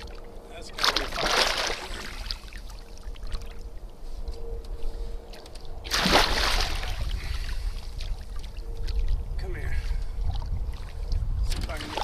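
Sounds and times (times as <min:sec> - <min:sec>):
water sloshing against boat: 0:00.0 - 0:12.0
fish thrashing splash: 0:00.8 - 0:03.6, 0:05.8 - 0:07.2.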